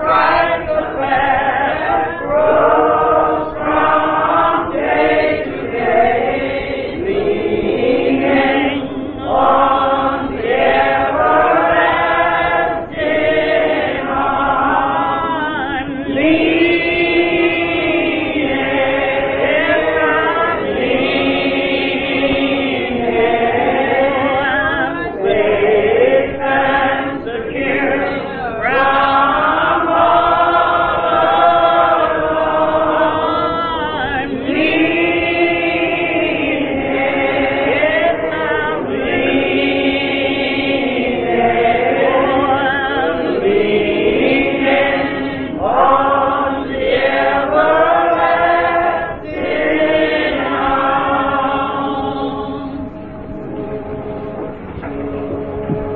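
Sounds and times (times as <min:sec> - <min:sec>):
choir singing gospel: 0:00.0 - 0:55.9.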